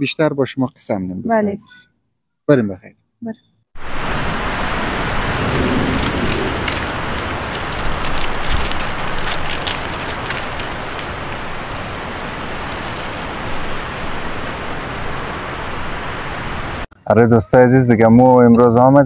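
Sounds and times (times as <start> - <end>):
steady rushing hiss: 3.8 - 16.9
short sharp crackles: 5.2 - 14.0.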